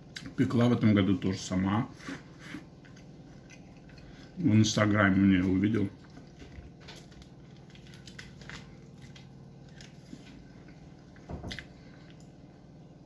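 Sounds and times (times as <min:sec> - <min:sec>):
mouth chewing food: 0:02.0 - 0:04.5, 0:05.4 - 0:12.4.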